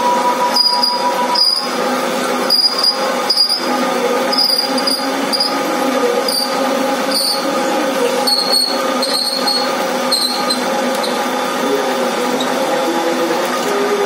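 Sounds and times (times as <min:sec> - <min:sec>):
high-pitched tool squeals: 0:00.0 - 0:01.9, 0:02.5 - 0:05.6, 0:06.2 - 0:11.3
lathe machine hum: 0:00.0 - 0:14.0.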